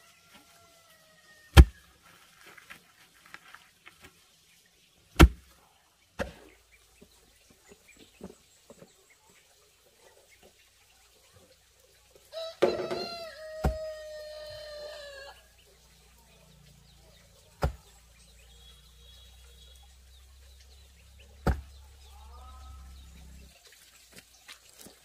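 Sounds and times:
rooster crowing: 12.3 - 15.5
fowl call: 12.4 - 15.4
sharp knocks: 21.4 - 21.8.

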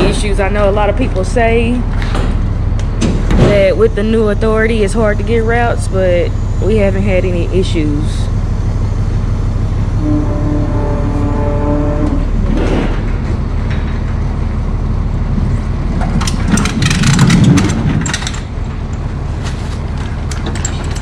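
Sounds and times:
steady low rumble: 0.0 - 21.0
pallet jack rattling on metal: 16.0 - 18.5, 19.9 - 21.0.

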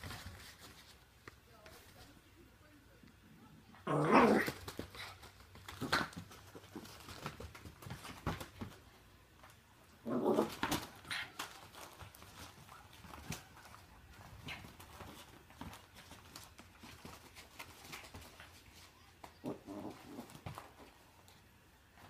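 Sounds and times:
paws and toy scuffling on carpet: 0.0 - 2.3, 4.3 - 22.0
small dog growling and snarling: 3.8 - 5.1, 10.0 - 11.3, 19.4 - 20.6.

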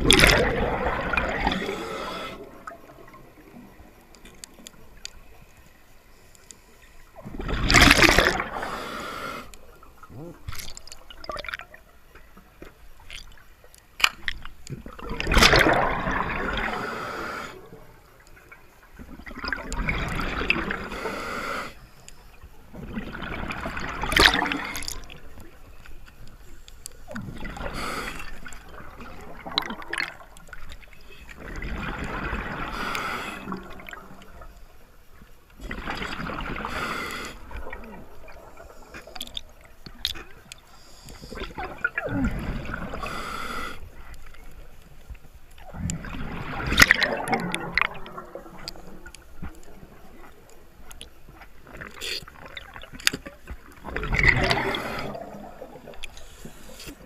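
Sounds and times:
diver inhaling through regulator: 1.4 - 2.5, 8.4 - 9.5, 16.6 - 17.6, 20.8 - 21.8, 27.6 - 28.4, 32.7 - 33.6, 36.6 - 37.5, 42.9 - 43.9, 54.4 - 55.4
faint clicks: 3.9 - 7.1, 24.2 - 27.3, 46.7 - 55.2, 55.8 - 57.0.

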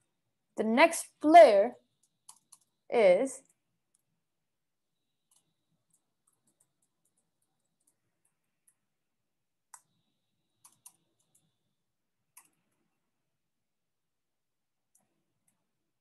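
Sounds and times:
faint keyboard typing: 1.8 - 4.3, 5.0 - 13.0, 14.9 - 15.8.

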